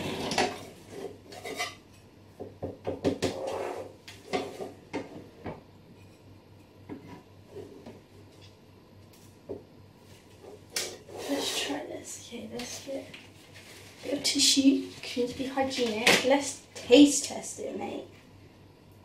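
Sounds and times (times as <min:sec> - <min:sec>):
spatula scraping metal tin: 0:00.0 - 0:01.8, 0:11.0 - 0:11.8.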